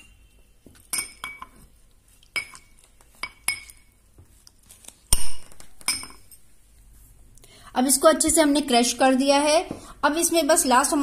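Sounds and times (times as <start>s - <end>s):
clinks against glass: 0.9s - 1.6s, 5.2s - 6.4s.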